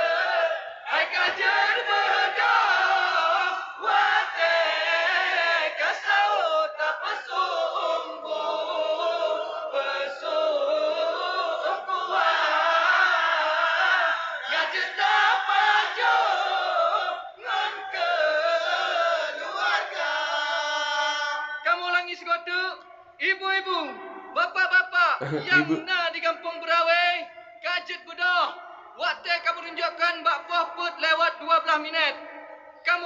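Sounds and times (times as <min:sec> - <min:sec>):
men chanting together: 0:00.0 - 0:21.6, 0:25.2 - 0:25.8
lead male voice holding notes: 0:25.2 - 0:26.0.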